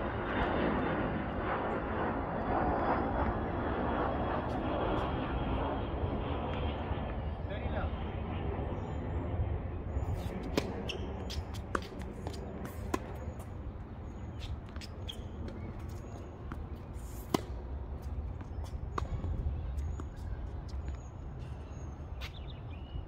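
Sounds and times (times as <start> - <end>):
tennis ball struck by rackets: 10.4 - 13.5, 14.4 - 20.3.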